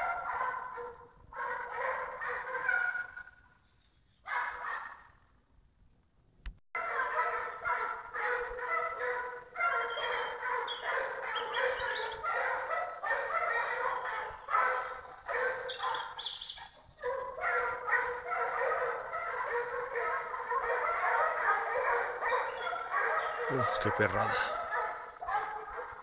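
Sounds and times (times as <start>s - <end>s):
hounds baying: 0.0s - 3.4s, 4.3s - 5.2s, 6.8s - 26.0s.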